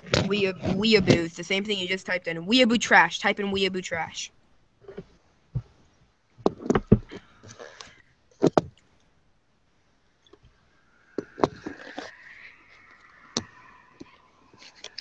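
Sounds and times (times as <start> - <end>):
sharp knocks and clicks: 6.4 - 7.2.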